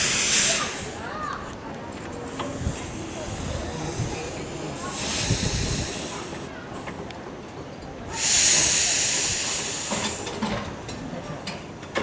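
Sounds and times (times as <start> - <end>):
steam locomotive hissing: 0.0 - 1.3, 2.1 - 6.8, 8.0 - 10.9.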